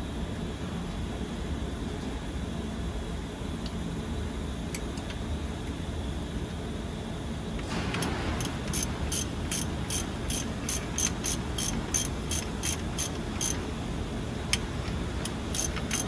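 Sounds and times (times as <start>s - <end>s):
ratchet wrench clicking: 8.0s - 13.6s, 14.5s - 16.0s.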